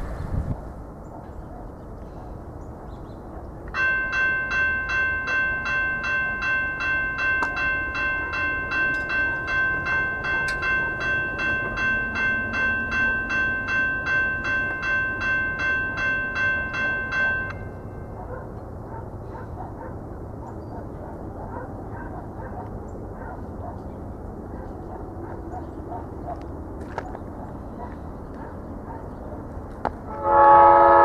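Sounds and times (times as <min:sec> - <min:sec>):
crossing warning bell ringing: 0:03.7 - 0:18.8, 0:30.0 - 0:31.0.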